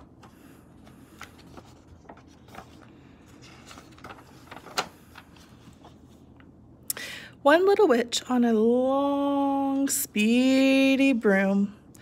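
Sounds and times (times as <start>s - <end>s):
book pages turning: 0.0s - 6.4s.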